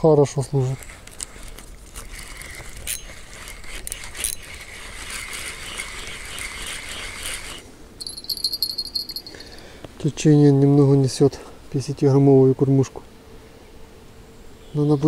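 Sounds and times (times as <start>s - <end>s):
fishing reel cranking whir: 0.7s - 9.2s
insects chirping: 5.4s - 10.0s.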